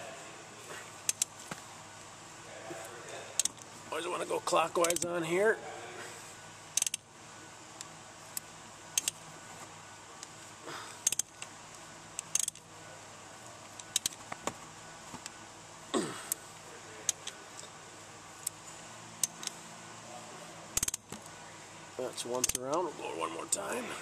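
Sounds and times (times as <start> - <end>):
socket wrench clicking: 1.1 - 1.3, 4.8 - 5.1, 6.7 - 7.0, 7.8 - 9.2, 11.0 - 11.5, 12.2 - 12.6, 13.8 - 14.2, 19.2 - 19.6, 20.8 - 21.1, 22.4 - 22.7.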